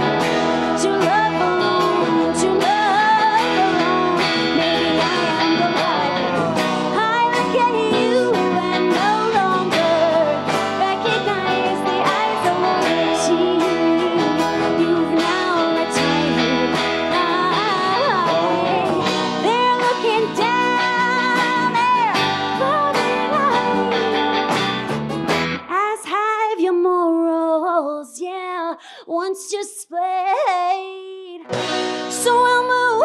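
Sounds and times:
woman singing: 0.0s - 24.5s, 25.6s - 33.0s
folk band playing: 0.0s - 25.6s.

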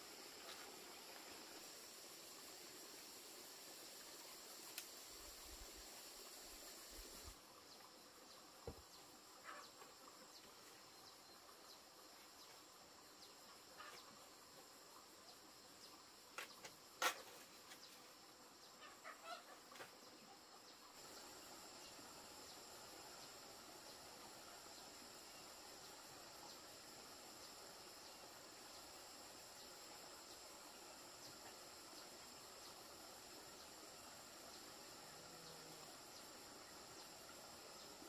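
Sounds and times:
high insect drone: 0.0s - 20.0s, 20.9s - 38.0s
distant chicken calls: 18.8s - 19.6s.

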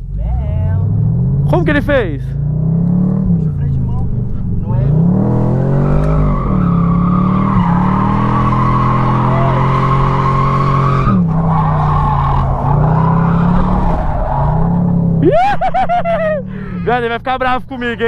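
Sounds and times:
car engine revving high: 0.0s - 17.0s
tyres squealing: 5.7s - 15.1s.

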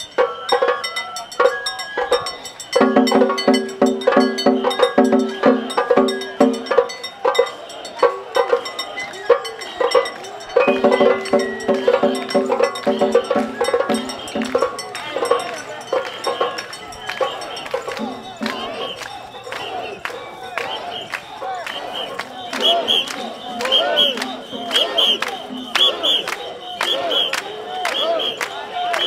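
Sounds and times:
taiko drums: 0.0s - 19.7s, 22.2s - 26.3s
bamboo flute playing: 20.6s - 29.0s.

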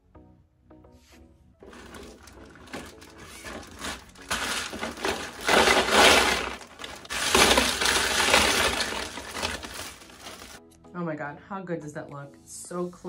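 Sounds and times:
plastic tubes clattering into a bin: 1.6s - 10.6s.

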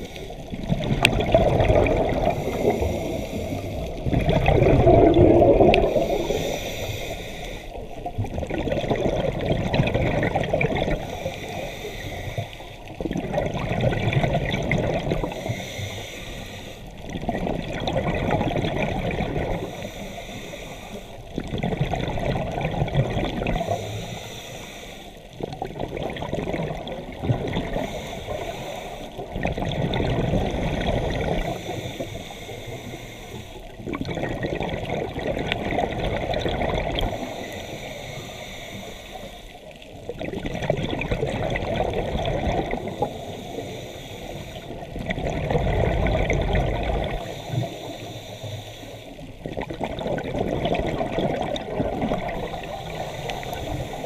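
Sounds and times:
faint regulator hiss: 0.0s - 0.6s, 2.1s - 4.2s, 5.7s - 8.2s, 10.8s - 13.0s, 15.0s - 17.2s, 19.3s - 21.4s, 23.3s - 25.6s, 27.6s - 29.4s, 30.5s - 33.9s, 36.9s - 40.2s, 42.6s - 45.1s, 47.0s - 49.5s, 52.0s - 54.0s
exhaled bubbles gurgling underwater: 0.0s - 54.0s.

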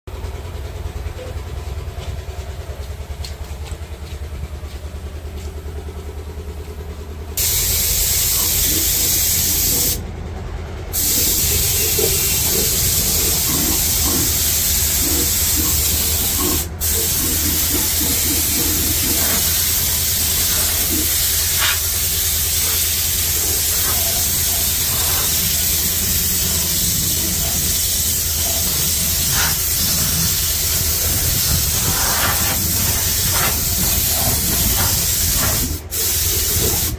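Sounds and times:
low machine hum: 0.1s - 36.9s
spray gun hissing: 7.4s - 10.0s, 10.9s - 36.9s.

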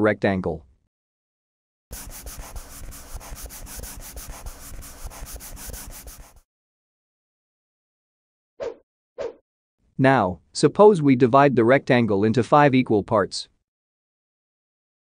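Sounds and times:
marker scribbling on paper: 1.9s - 6.5s.

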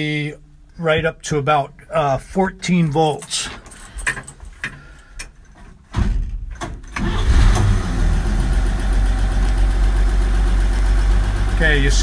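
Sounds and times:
engine starter cranking: 6.6s - 8.8s
engine running: 7.0s - 12.0s.

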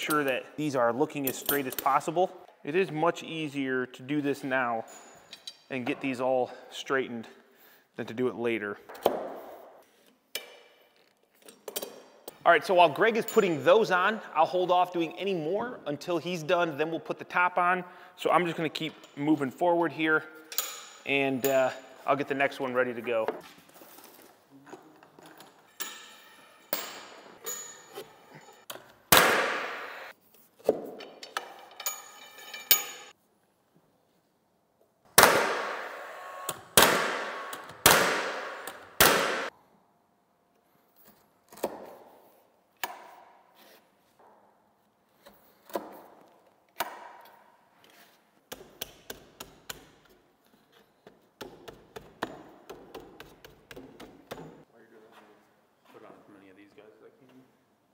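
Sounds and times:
knocks and clinks of work: 24.7s - 29.7s, 30.6s - 33.2s
nail gun firing: 29.1s - 30.0s, 35.2s - 39.5s.

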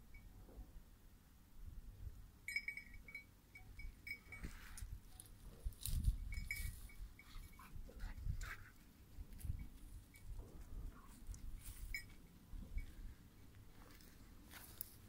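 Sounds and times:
brush rustling: 11.1s - 15.0s.

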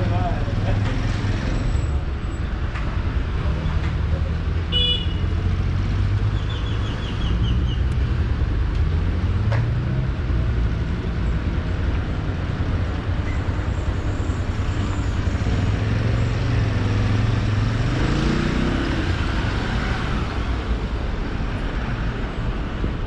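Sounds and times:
traffic engines rumbling: 0.0s - 23.0s
car horn toot: 4.7s - 5.2s.

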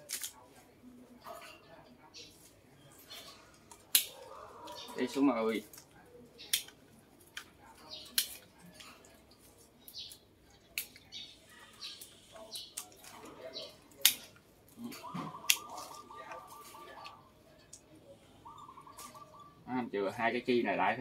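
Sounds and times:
pruning shears snipping: 3.7s - 4.8s, 5.7s - 8.5s, 13.9s - 16.4s
bird trilling: 14.8s - 17.4s, 18.3s - 19.8s.

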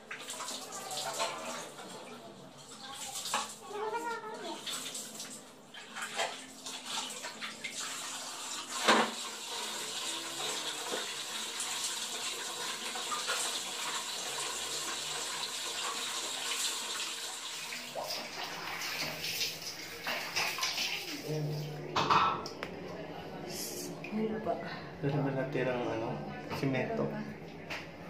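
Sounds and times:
water splashing and running: 2.8s - 21.7s.

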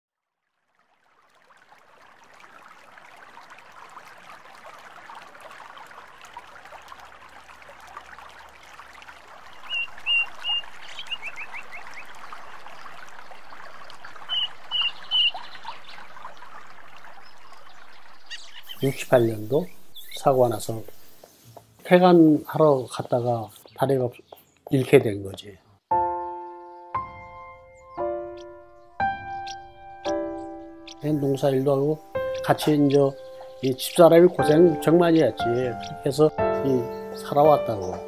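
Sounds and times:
faint chirping background: 9.5s - 38.0s
bird calling high notes: 9.6s - 12.3s, 14.2s - 16.1s, 25.9s - 38.0s.

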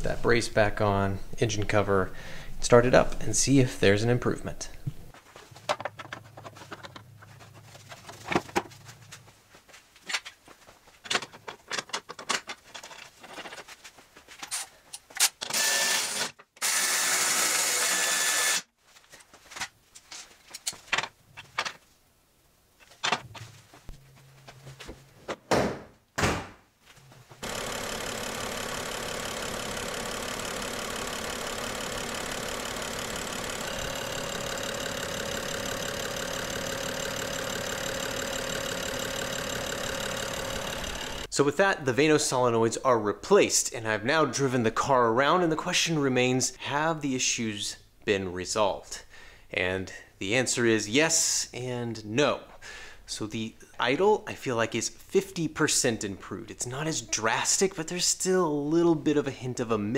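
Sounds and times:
clicks and knocks of parts: 5.5s - 8.8s, 11.0s - 15.6s, 19.5s - 21.8s, 22.8s - 23.4s
loud steady mechanical noise: 27.4s - 41.3s.

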